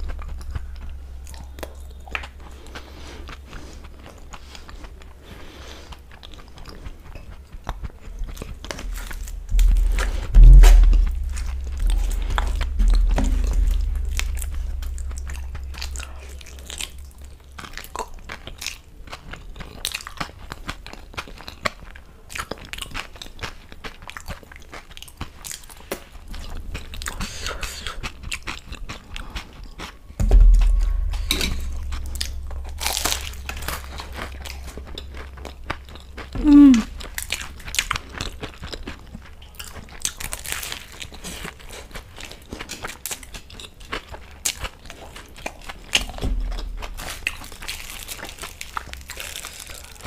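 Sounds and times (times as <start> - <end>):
chewing and wet mouth sounds: 0.0 - 10.4, 11.0 - 50.0
low thump: 9.0 - 17.4, 30.2 - 37.2, 46.1 - 47.4
crunchy bite: 45.4 - 50.0.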